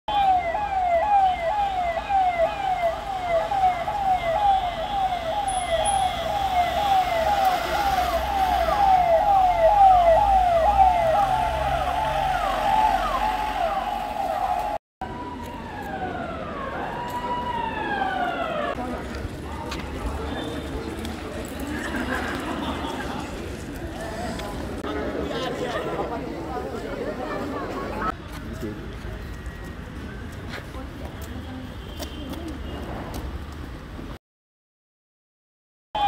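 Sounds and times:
emergency siren: 0.1s - 19.0s.

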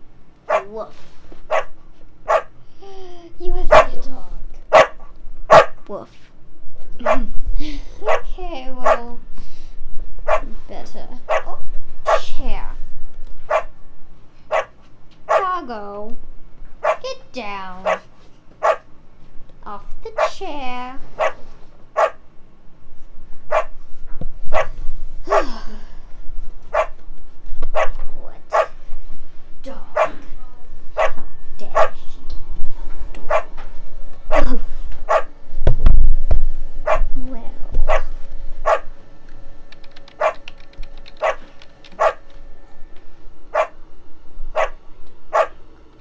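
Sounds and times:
dog barking: 0.5s - 0.7s, 1.5s - 1.7s, 2.3s - 2.5s, 3.7s - 4.0s, 4.7s - 5.8s, 8.1s - 9.1s, 10.2s - 10.5s, 11.3s - 11.5s, 12.1s - 12.3s, 13.5s - 13.7s, 14.5s - 14.7s, 15.3s - 15.5s, 16.8s - 17.0s, 17.8s - 18.9s, 21.2s - 21.4s, 22.0s - 22.2s, 23.5s - 23.7s, 24.5s - 24.7s, 26.7s - 27.0s, 27.7s - 28.8s, 30.0s - 30.2s, 31.0s - 31.2s, 31.8s - 32.0s, 33.3s - 33.5s, 34.3s - 35.3s, 36.8s - 37.1s, 37.9s - 38.8s, 40.2s - 40.4s, 41.2s - 42.2s, 43.5s - 43.8s, 44.6s - 45.6s.

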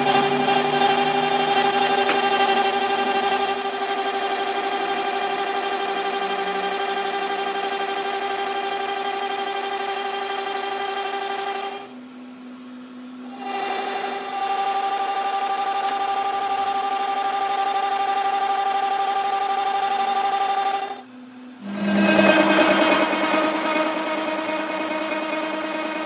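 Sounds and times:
lathe cutting tool ringing whine: 0.0s - 11.9s, 13.3s - 21.0s, 21.6s - 26.0s
lathe low hum: 0.0s - 26.0s
rough cutting sound: 21.6s - 25.5s.

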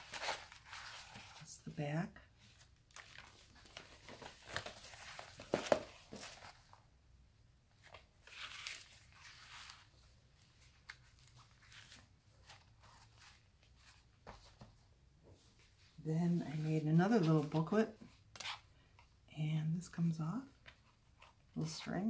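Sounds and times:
paper pages rustling: 0.0s - 1.4s, 2.4s - 6.8s, 7.8s - 14.8s.

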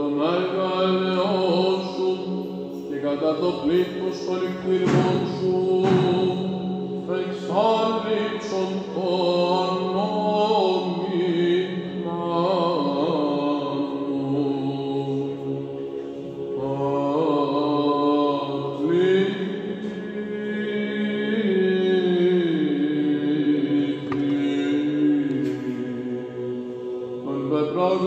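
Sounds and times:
low vocal drone: 0.0s - 28.0s
solo voice chanting a hymn: 0.0s - 28.0s.

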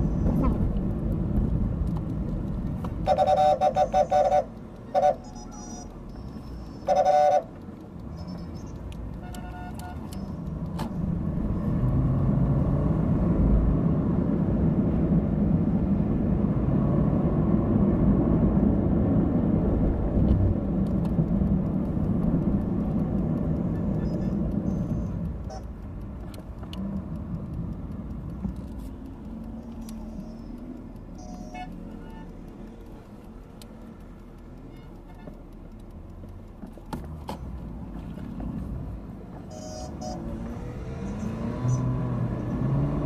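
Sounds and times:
traffic rumble: 0.0s - 43.0s
vehicle horns honking: 3.0s - 5.9s, 6.8s - 8.5s, 9.2s - 10.2s, 31.2s - 32.4s, 39.5s - 40.3s.

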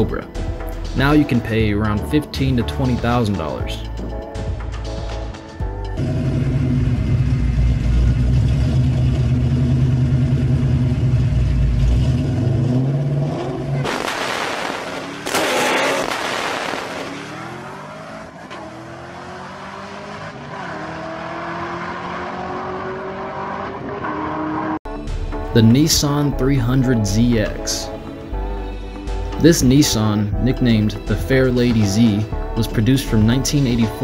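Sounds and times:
car engine revving and shifting: 4.0s - 24.8s
car launching burst: 13.7s - 18.3s.

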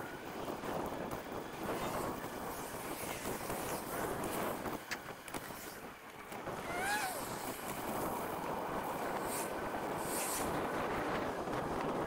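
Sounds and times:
road and tyre noise: 0.0s - 12.0s
wind rushing over microphone: 0.0s - 12.0s
short high voice-like sound: 6.6s - 7.2s.

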